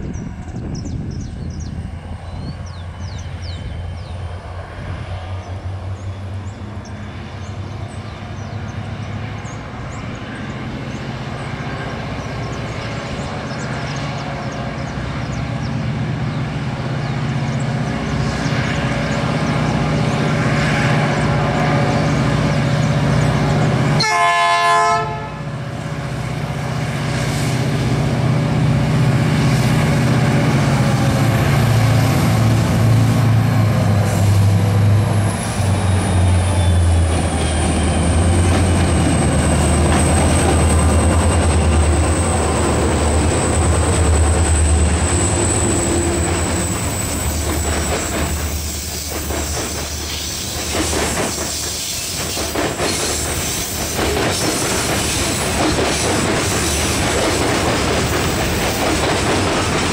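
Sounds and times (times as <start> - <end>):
diesel locomotive engine drone: 0.0 - 59.9
train air horn blast: 24.0 - 25.7.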